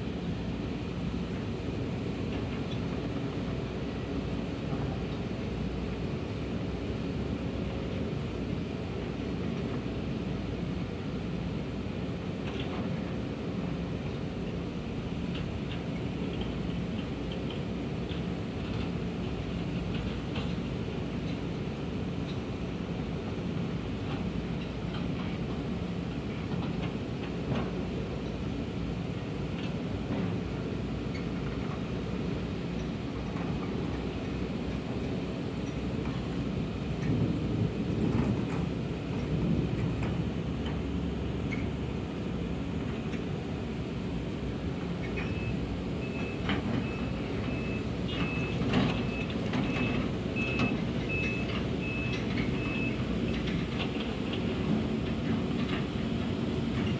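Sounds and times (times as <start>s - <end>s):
diesel machinery engine rumble: 0.0s - 56.9s
reversing alarm beeping: 45.3s - 53.0s.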